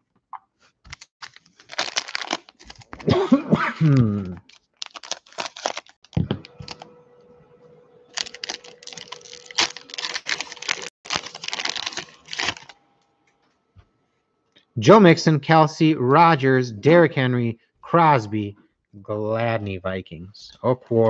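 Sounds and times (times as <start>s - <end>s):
plastic wrapper crinkling: 0.8s - 3.1s, 4.2s - 6.9s, 8.1s - 12.8s
wrapper being torn open: 0.9s - 3.1s, 3.9s - 6.9s, 8.1s - 12.8s.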